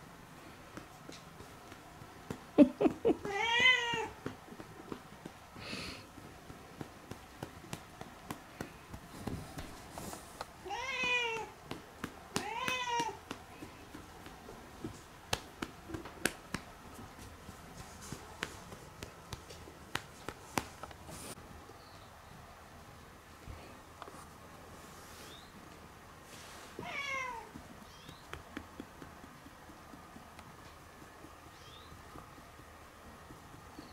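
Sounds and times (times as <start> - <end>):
hand patting a cat: 0.7 - 21.4, 26.8 - 31.5
cat meowing: 3.2 - 4.1, 10.6 - 11.5, 12.4 - 13.2.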